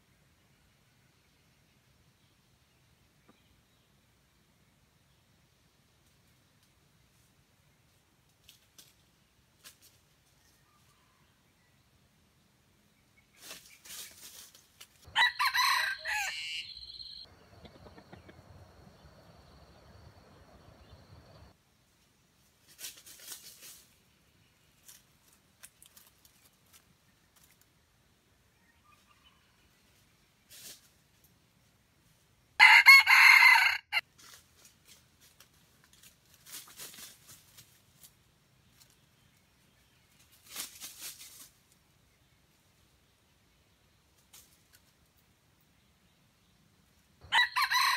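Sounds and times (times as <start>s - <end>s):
rustling in dry leaves: 7.1s - 10.9s, 13.3s - 16.4s, 22.3s - 27.7s, 29.8s - 42.8s, 44.0s - 45.2s
rooster crowing: 15.1s - 17.2s, 32.6s - 34.0s, 47.2s - 47.9s.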